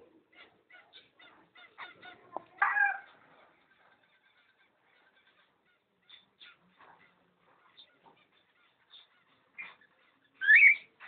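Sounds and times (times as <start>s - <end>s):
cockatiels chirping: 0.3s - 11.0s
cockatiel harsh squawk: 10.4s - 11.0s.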